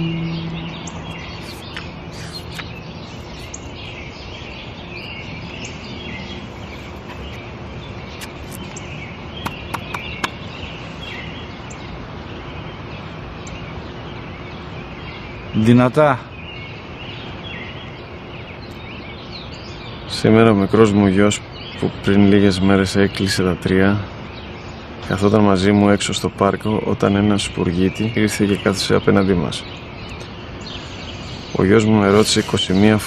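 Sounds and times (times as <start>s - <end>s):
low lingering tone: 0.0s - 3.3s
small birds chirping: 0.0s - 33.0s
steady background hiss: 0.0s - 33.0s
sharp clicks: 9.4s - 10.4s.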